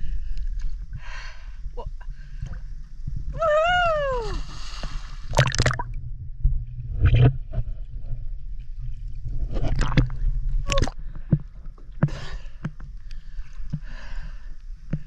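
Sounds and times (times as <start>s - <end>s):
water sloshing and gurgling: 0.0s - 3.4s, 4.2s - 15.0s
low rumble: 0.0s - 14.5s
sharp knocks and splashes: 5.3s - 6.0s, 9.5s - 12.8s.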